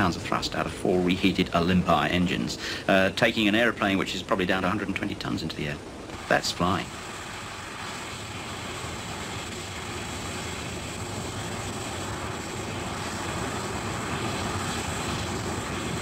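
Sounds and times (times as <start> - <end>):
jet aircraft engine rushing: 6.1 - 16.0.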